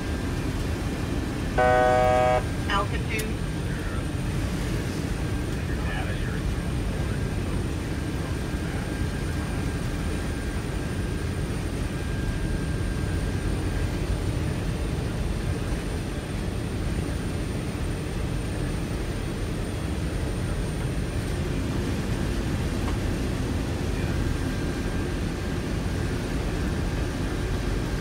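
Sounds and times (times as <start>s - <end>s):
jet engines and airflow rumble: 0.0s - 28.0s
high steady whine: 1.5s - 3.3s
faint tone: 1.6s - 2.5s.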